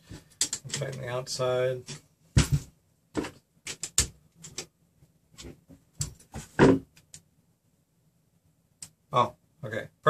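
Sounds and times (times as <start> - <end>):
small clicks and knocks: 0.1 - 1.1, 3.2 - 4.7.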